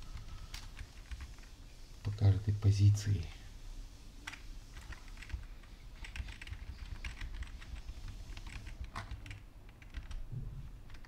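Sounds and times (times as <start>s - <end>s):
low steady hum: 0.0s - 11.0s
keyboard typing clicks: 6.0s - 10.2s.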